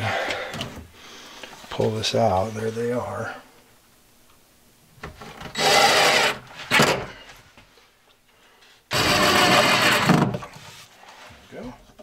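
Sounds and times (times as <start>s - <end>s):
power drill driving screws: 5.5s - 7.1s, 8.9s - 10.3s.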